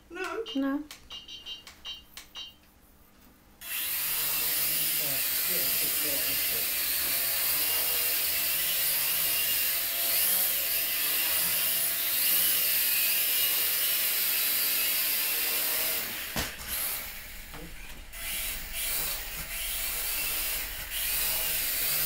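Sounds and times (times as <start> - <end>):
quadcopter motors whining: 3.6 - 22.0.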